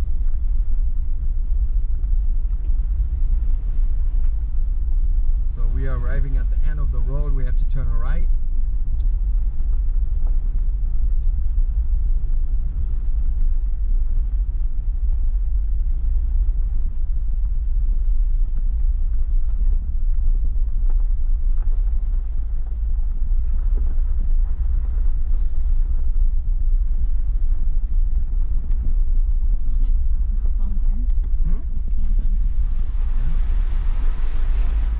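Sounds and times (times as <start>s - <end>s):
vehicle low rumble driving: 0.0s - 34.9s.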